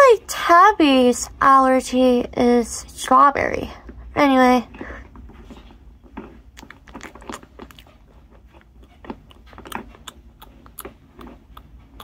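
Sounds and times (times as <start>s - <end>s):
chewing crunchy cracker: 6.5s - 12.0s.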